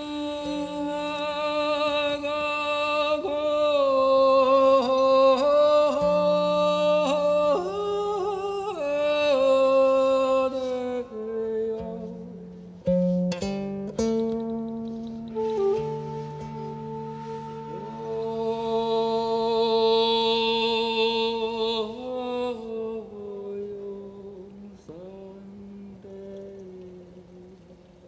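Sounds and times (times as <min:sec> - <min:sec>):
sharp plucked strokes: 0:11.8 - 0:19.0
bamboo flute melody: 0:14.8 - 0:19.7.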